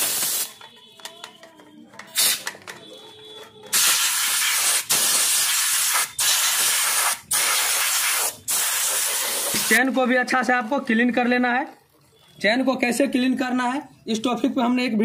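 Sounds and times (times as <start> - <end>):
air spray gun hissing: 0.0 - 0.5, 2.2 - 2.5, 3.7 - 9.8.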